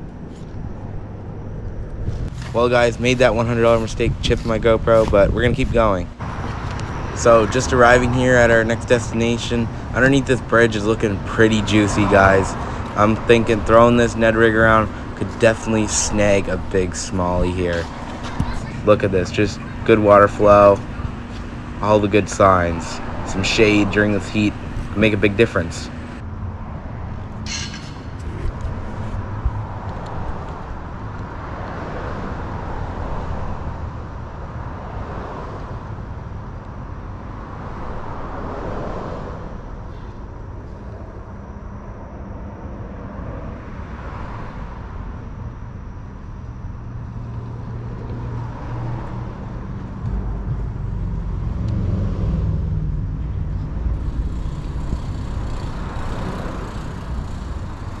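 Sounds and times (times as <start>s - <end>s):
traffic rumble on bridge: 0.0s - 58.0s
vehicles passing: 0.0s - 58.0s
heavy low drone: 44.6s - 58.0s.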